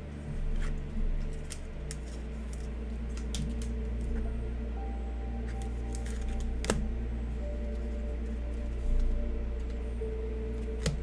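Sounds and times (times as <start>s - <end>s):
steady low hum: 0.0s - 11.0s
plastic and card clicks and rustles: 0.4s - 4.2s, 5.5s - 6.9s.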